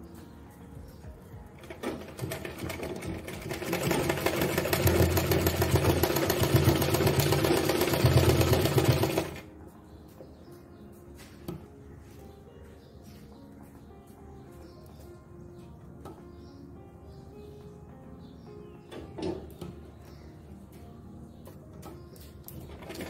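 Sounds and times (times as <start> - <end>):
sewing machine stitching: 1.6 - 9.4, 22.5 - 23.0.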